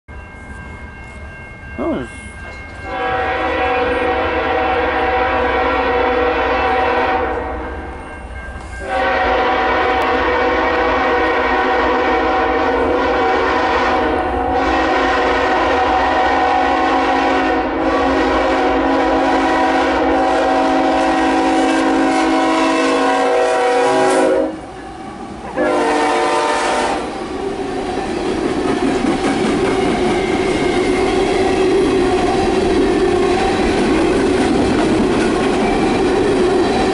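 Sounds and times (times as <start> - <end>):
train cars rumbling and clacking: 0.1 - 36.9
locomotive air horn blasts: 2.8 - 7.6, 8.8 - 24.7, 25.6 - 27.1.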